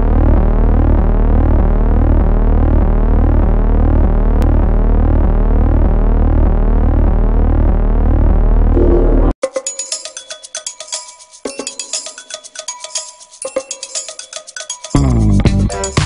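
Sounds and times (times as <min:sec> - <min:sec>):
loud low synth drone: 0:00.0 - 0:09.4
electronic tones sweeping upward: 0:08.7 - 0:09.4.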